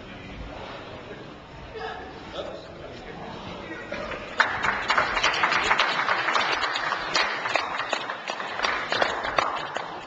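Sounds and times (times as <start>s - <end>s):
crowd applauding: 4.0s - 10.0s.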